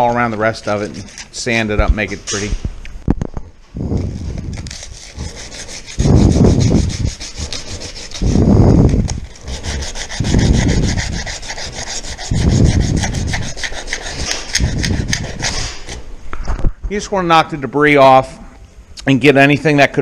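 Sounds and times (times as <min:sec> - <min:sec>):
sandpaper rubbing on metal: 0:00.0 - 0:01.7, 0:04.0 - 0:16.0.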